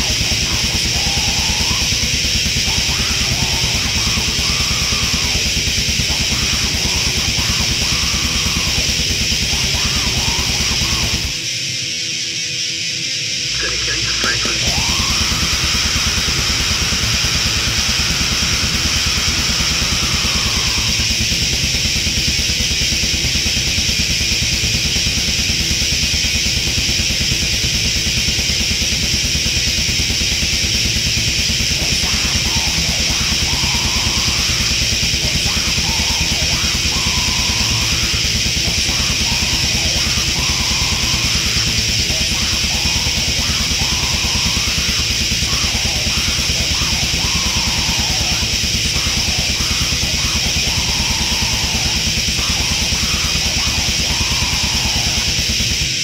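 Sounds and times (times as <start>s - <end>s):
heavy metal song: 0.0s - 56.0s
high bending guitar line: 13.5s - 21.0s.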